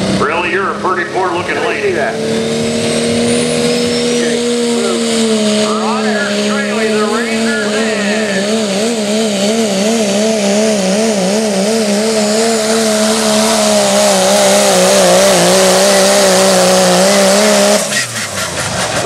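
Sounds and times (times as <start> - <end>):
diesel engine at full throttle: 0.0 - 19.0.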